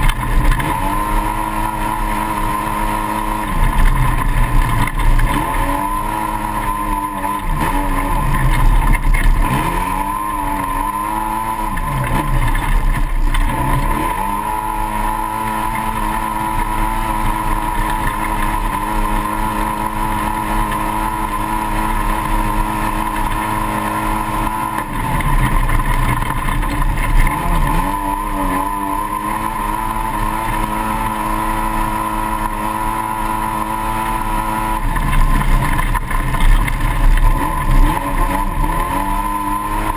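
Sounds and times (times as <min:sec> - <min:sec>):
engine running at high revs: 0:00.0 - 0:39.9.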